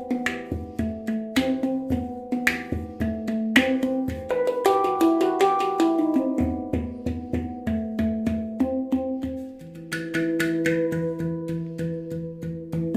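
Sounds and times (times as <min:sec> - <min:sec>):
handpan played by hand: 0:00.0 - 0:12.9.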